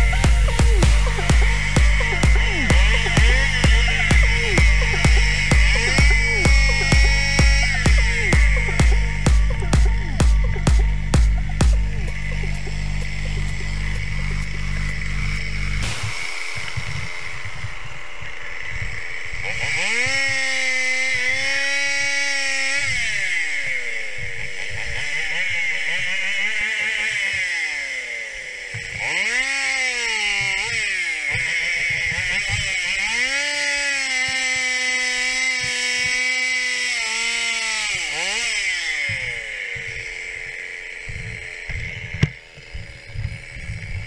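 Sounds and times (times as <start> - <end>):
chainsaw revving: 0.0 - 44.0.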